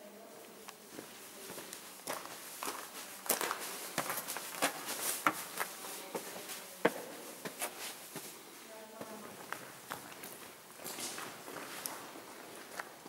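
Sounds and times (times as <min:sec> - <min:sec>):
footsteps scuffing and tapping: 0:00.9 - 0:08.4.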